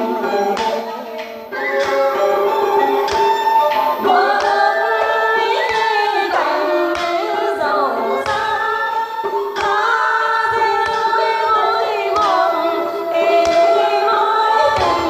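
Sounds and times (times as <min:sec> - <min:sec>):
woman singing through loudspeaker: 0:00.0 - 0:15.0.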